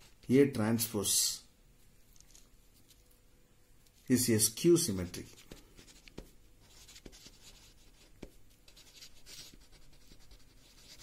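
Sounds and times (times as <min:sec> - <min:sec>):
pen scratching on paper: 0:05.3 - 0:11.0.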